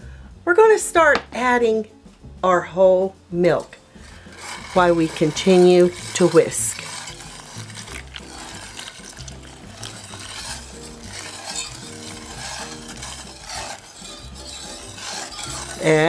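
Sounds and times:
soft background music: 0.0 - 16.0
whisk scraping in saucepan: 3.4 - 16.0.

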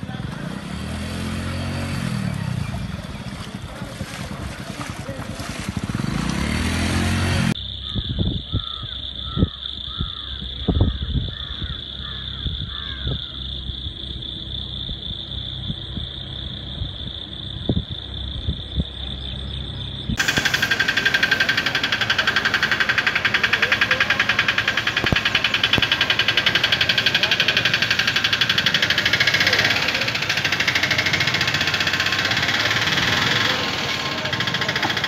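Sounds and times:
motorcycle engine revving: 0.0 - 7.6, 19.6 - 35.0
rushing floodwater: 0.0 - 7.6, 20.2 - 35.0
high-pitched insect drone: 7.5 - 35.0.

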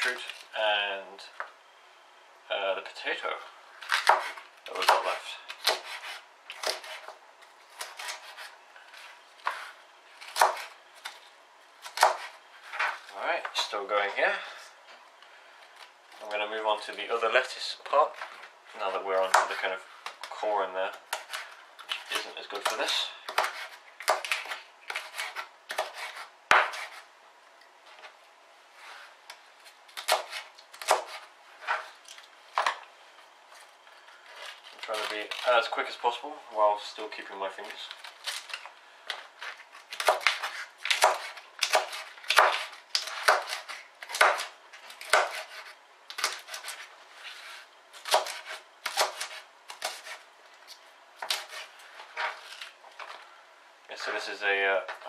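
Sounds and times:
knife chopping on plastic board: 3.9 - 7.1, 10.3 - 10.7, 21.1 - 27.0, 39.1 - 46.8, 48.0 - 50.2.

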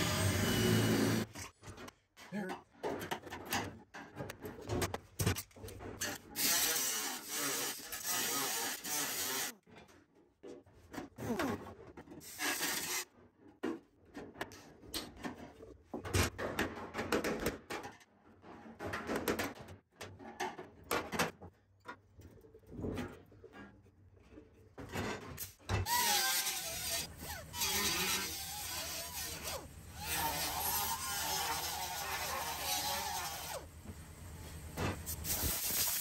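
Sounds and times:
pneumatic grinder hissing: 34.9 - 36.0.

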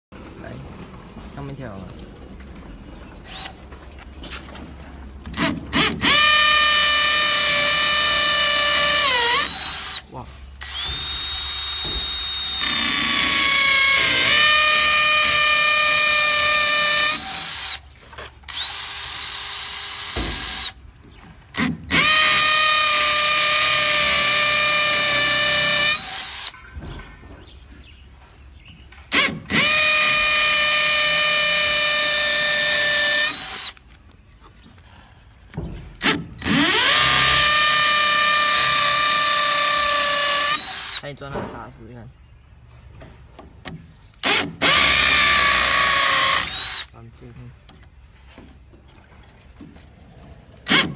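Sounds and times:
hammer drill boring into brick: 5.3 - 20.8, 21.5 - 26.6, 29.1 - 33.8, 36.0 - 41.1, 44.2 - 46.9, 50.6 - 50.9.

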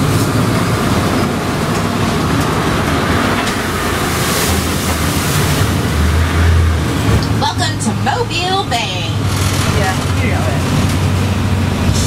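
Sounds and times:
boat engine running: 0.0 - 12.0
water rushing against hull: 0.0 - 12.0.

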